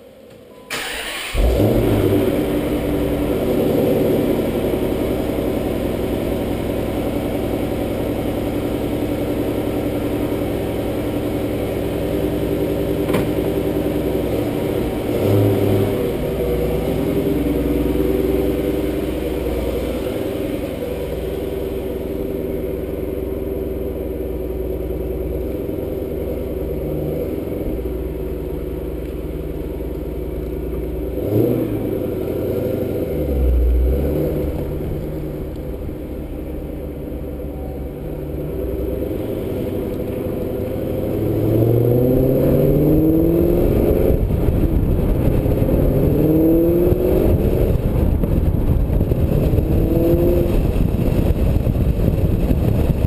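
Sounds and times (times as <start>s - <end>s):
car engine idling burble: 0.7s - 41.6s.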